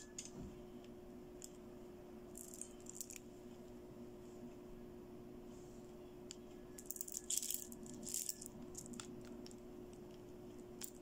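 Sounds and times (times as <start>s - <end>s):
plastic beads rattling and clicking: 2.3s - 3.3s, 6.8s - 11.0s.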